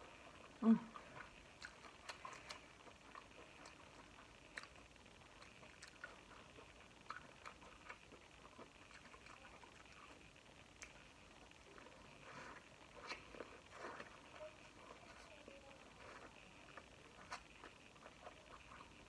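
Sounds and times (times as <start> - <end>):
chewing corn on the cob: 0.0 - 19.0
quiet hiss: 0.0 - 19.0.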